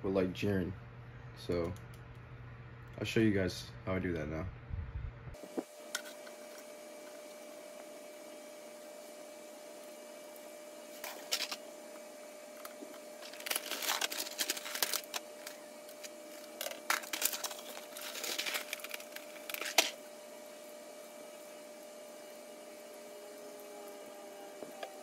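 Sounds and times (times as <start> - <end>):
faint steady hum: 0.0 - 25.0
plastic packaging crinkling: 11.0 - 11.7, 12.5 - 20.0.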